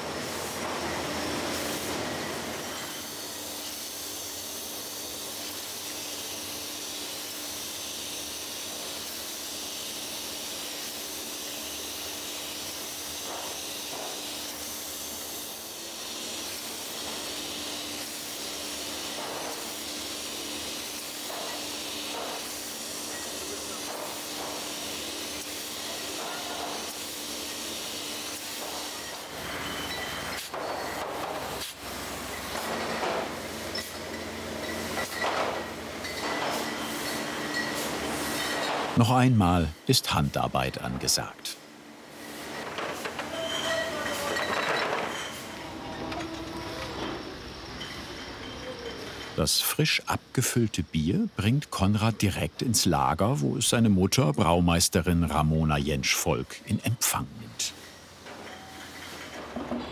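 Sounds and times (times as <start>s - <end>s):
bottling machine hiss: 0.0s - 59.9s
machine hum: 45.4s - 48.0s.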